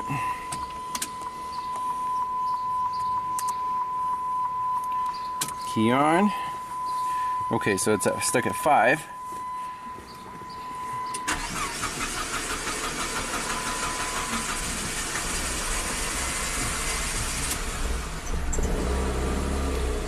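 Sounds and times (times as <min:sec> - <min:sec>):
steady high tone: 0:00.0 - 0:14.6
car engine cranking on starter: 0:11.1 - 0:20.0
engine running poorly: 0:11.3 - 0:20.0.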